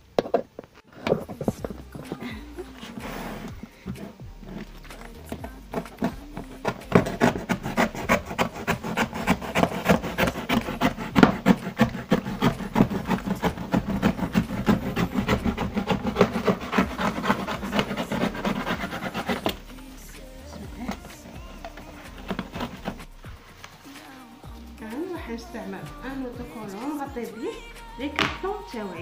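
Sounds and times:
marker pen scratching cardboard: 2.8s - 19.8s, 20.5s - 23.2s.

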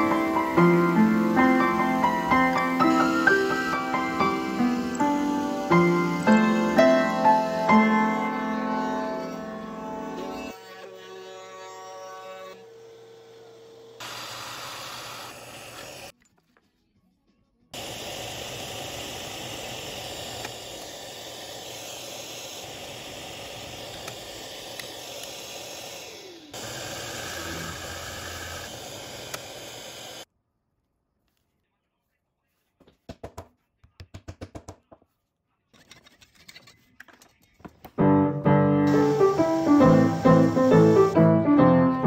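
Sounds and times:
dust extraction hose hiss: 0.0s - 9.5s, 14.0s - 16.1s, 17.8s - 30.3s, 38.4s - 41.6s
drill press boring into wood: 13.9s - 16.1s, 17.8s - 30.2s, 38.9s - 41.1s.

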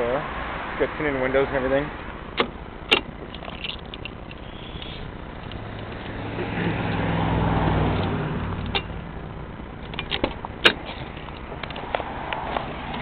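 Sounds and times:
car door latch clicks: 2.3s - 4.1s
vehicle driving past: 5.6s - 9.1s.

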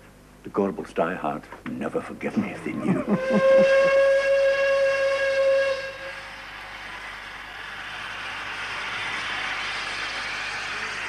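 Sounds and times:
steam locomotive whistle: 3.0s - 6.6s.

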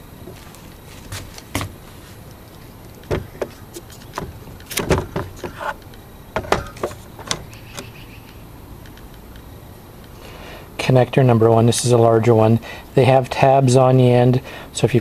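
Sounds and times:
plastic knocking on wooden table: 4.2s - 5.6s.

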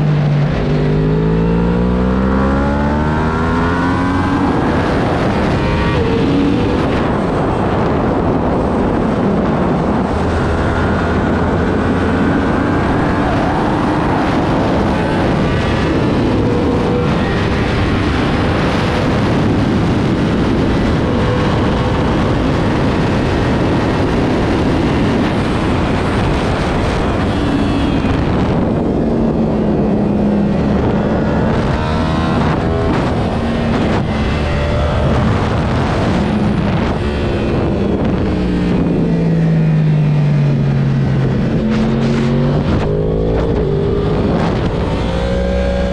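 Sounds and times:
motorcycle engine revving: 0.0s - 45.9s
wind rushing: 0.0s - 45.9s.

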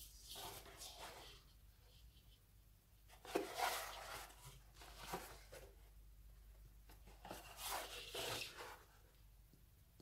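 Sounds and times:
cardboard rubbing against skin: 3.2s - 5.8s, 7.2s - 9.0s.

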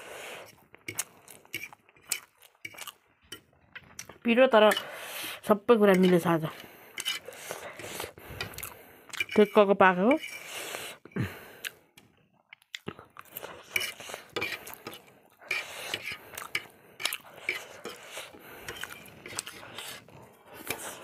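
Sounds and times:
fork scraping on ceramic plate: 0.4s - 3.9s, 4.6s - 5.3s, 5.9s - 10.7s, 13.6s - 21.0s
chewing: 0.5s - 4.2s, 6.4s - 9.4s, 11.6s - 21.0s.

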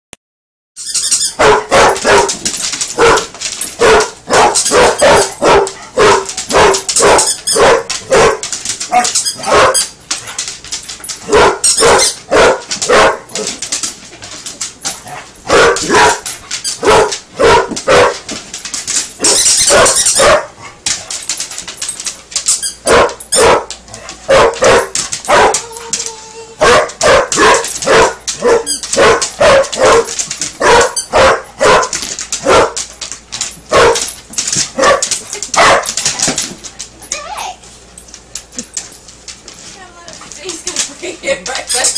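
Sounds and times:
dog barking: 1.4s - 2.4s, 3.0s - 9.9s, 11.3s - 13.3s, 15.5s - 16.2s, 16.8s - 18.2s, 19.7s - 20.6s, 22.9s - 25.6s, 26.6s - 32.8s, 33.7s - 34.1s, 34.8s - 35.9s.

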